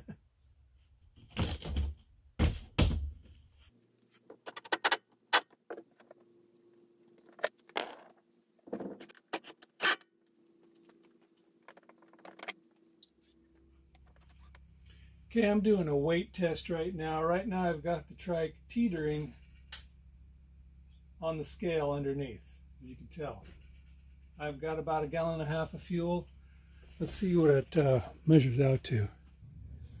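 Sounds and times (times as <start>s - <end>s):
faint steady hum: 10.1s - 30.0s.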